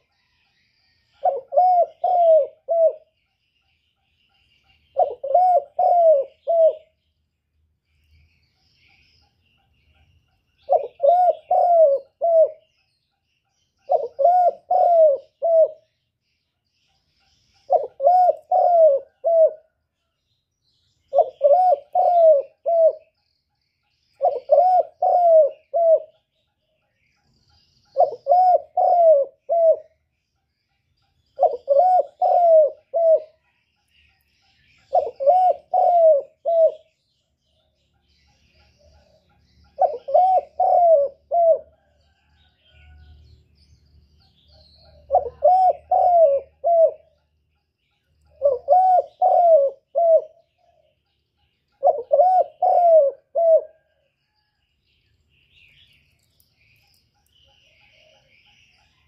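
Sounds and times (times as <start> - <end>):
dove cooing: 1.2 - 3.1, 4.9 - 7.0, 10.7 - 12.7, 13.9 - 15.9, 17.7 - 19.8, 21.1 - 23.1, 24.2 - 26.2, 27.9 - 30.0, 31.4 - 33.4, 34.8 - 36.9, 38.9 - 43.0, 44.6 - 47.2, 48.3 - 50.9, 51.8 - 54.5.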